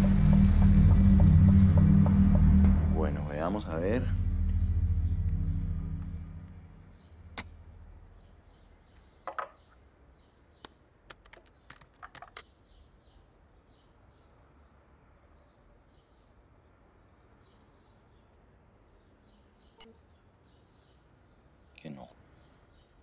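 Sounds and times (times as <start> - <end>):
car low rumble: 0.0 - 8.6
keyboard typing clicks: 11.1 - 12.4
faint bird chirps: 17.2 - 23.0.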